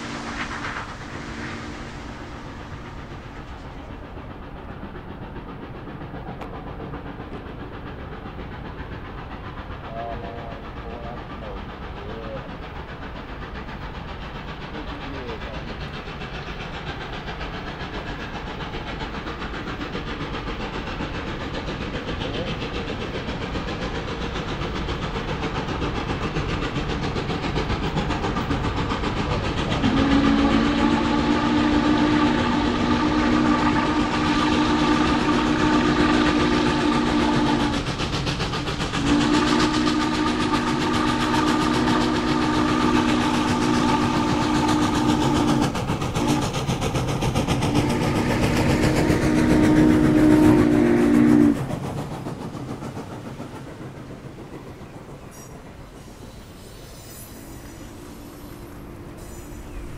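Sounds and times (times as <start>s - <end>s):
train wheels clattering on rail: 0.0s - 59.9s
chime steam whistle: 29.8s - 37.8s, 39.0s - 46.5s, 47.7s - 51.6s, 55.2s - 59.9s.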